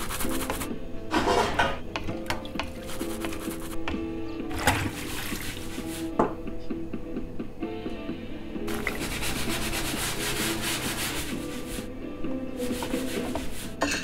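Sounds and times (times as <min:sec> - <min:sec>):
cloth rubbing a plate: 0:00.0 - 0:00.7, 0:02.7 - 0:03.8, 0:04.8 - 0:06.2, 0:08.7 - 0:11.9, 0:12.6 - 0:13.8
background music: 0:00.0 - 0:14.0.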